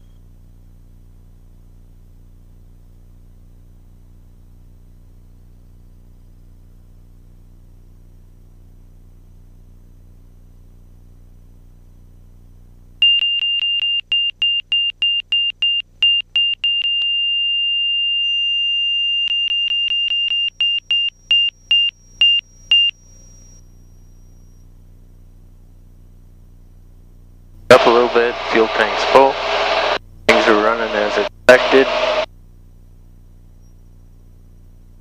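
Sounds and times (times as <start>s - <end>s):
cockpit warning tone beeping: 13.0s - 24.6s, 27.7s - 32.3s
aircraft engine hum: 27.7s - 32.3s.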